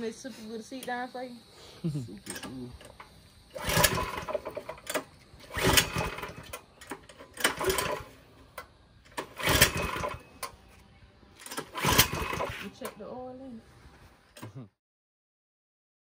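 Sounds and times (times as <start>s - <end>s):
engine turning over: 2.1s - 13.2s
recoil starter pulls: 2.2s - 13.2s.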